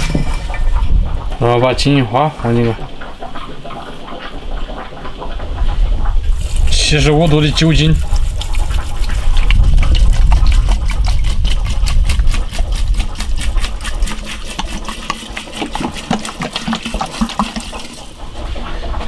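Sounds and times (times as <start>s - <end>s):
liquid pouring into a glass jar: 7.6s - 18.1s.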